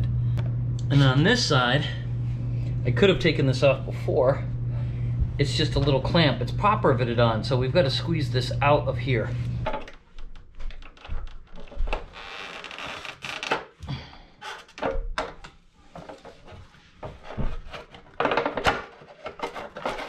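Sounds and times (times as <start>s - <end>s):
scraping and rubbing: 15.8s - 18.2s, 18.9s - 20.0s
plastic clicks and knocks: 17.8s - 20.0s.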